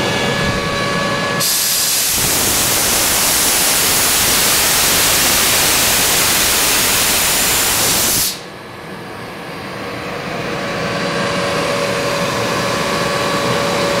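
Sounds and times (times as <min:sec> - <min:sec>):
air compressor humming: 0:00.0 - 0:14.0
compressed air hissing: 0:01.4 - 0:08.5.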